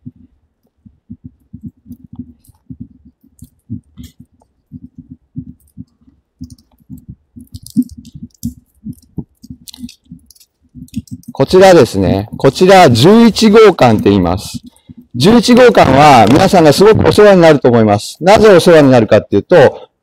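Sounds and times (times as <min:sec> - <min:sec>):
microphone handling thumps and rubbing: 0:00.0 - 0:17.2
faint clicks: 0:00.1 - 0:11.5.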